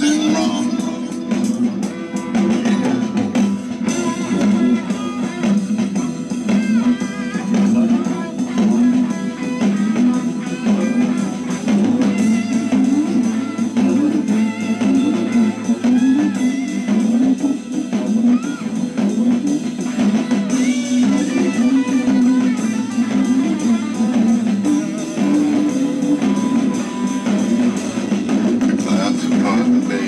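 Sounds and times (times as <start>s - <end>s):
guitar-led instrumental music: 0.0s - 30.0s.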